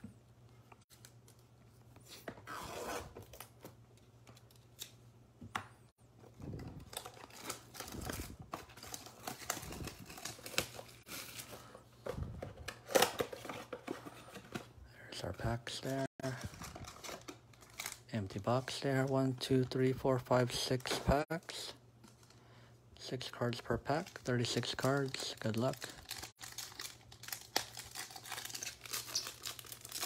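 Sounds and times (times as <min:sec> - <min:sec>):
shrink-wrap tearing and crinkling: 0:06.5 - 0:11.5, 0:16.2 - 0:18.1, 0:24.8 - 0:30.0.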